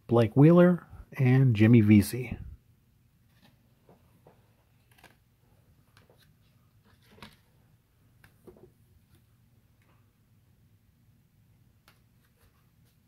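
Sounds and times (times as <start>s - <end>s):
cards clicking and rustling: 3.3s - 5.3s, 5.9s - 7.5s.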